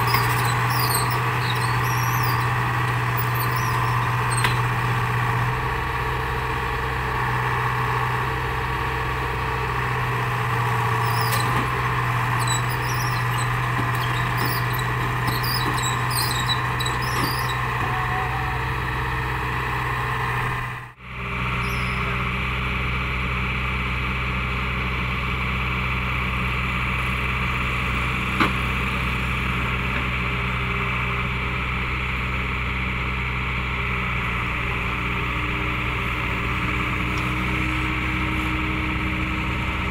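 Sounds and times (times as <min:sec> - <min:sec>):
high squeaks: 0:00.0 - 0:04.7, 0:12.4 - 0:18.6, 0:21.6 - 0:22.1
excavator diesel engine running: 0:00.0 - 0:39.9.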